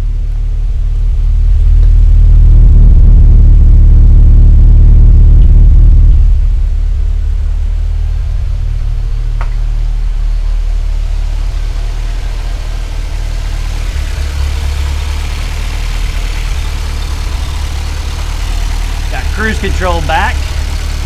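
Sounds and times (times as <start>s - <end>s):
car engine idling: 0.0s - 21.0s
engine hiss and mechanical noise: 8.0s - 21.0s.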